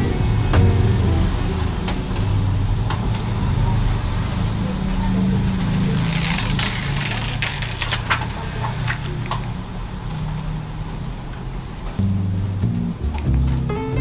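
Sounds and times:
low steady hum: 0.0 - 2.7, 12.0 - 14.0.

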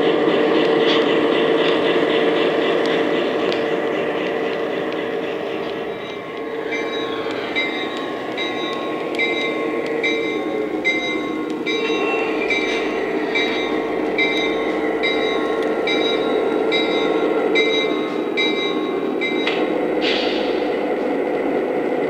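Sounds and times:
model train diesel engine hum: 0.0 - 22.0
fast regular clicking: 0.3 - 10.8
locomotive bell ringing: 0.8 - 20.8.

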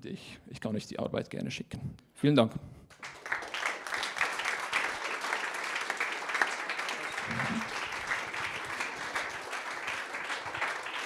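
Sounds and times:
audience applause: 2.9 - 11.0.

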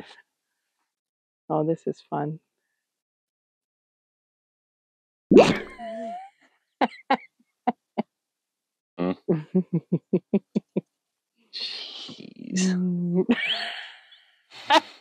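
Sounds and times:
person laughing: 5.4 - 7.2, 9.0 - 10.8, 12.6 - 14.0.

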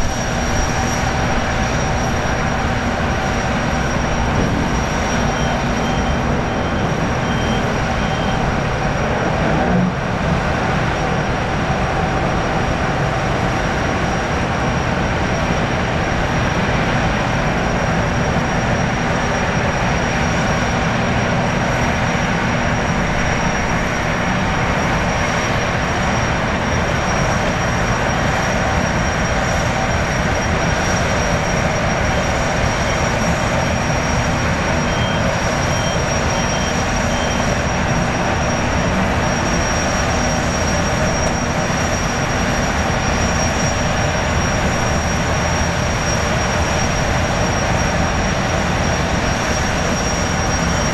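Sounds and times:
gas turbines rushing: 0.0 - 50.9
turbine high whine: 0.0 - 50.9.

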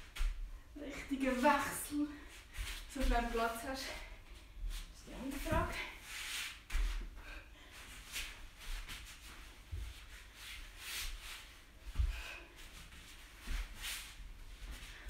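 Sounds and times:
person breathing: 11.9 - 12.8.

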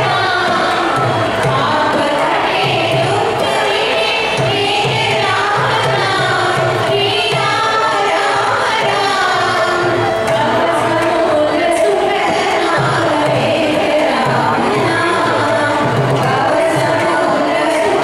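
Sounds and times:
violins playing in unison: 0.0 - 18.0.

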